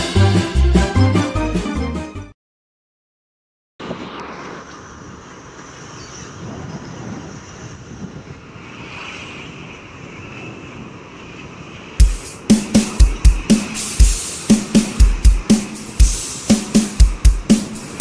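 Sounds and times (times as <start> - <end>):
loud music with drum beats: 0.0 - 1.7, 12.0 - 18.0
wind buffeting microphone: 3.8 - 16.5.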